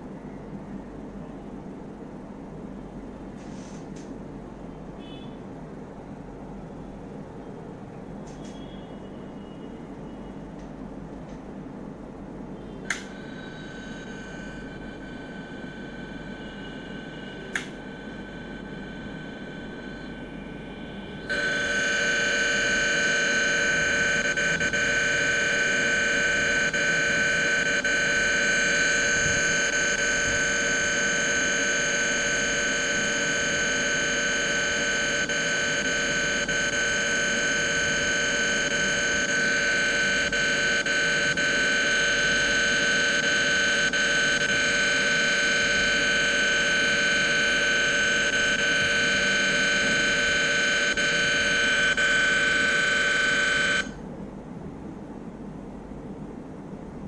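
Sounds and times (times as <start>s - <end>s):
short clicks: 12.9s - 13.1s, 17.5s - 17.8s
electric motor whine from phone speaker: 12.9s - 54.0s.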